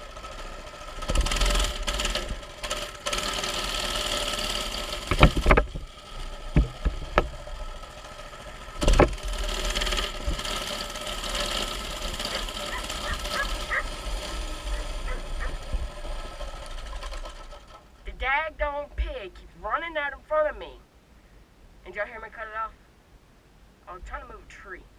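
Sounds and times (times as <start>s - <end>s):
small engine running: 0.0s - 18.1s
bike knocking and thumping: 1.0s - 2.4s, 4.9s - 7.7s, 8.7s - 10.8s.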